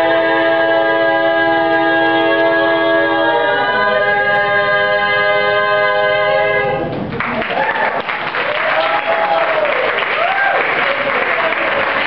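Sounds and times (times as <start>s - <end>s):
female a cappella quartet singing: 0.0s - 6.9s.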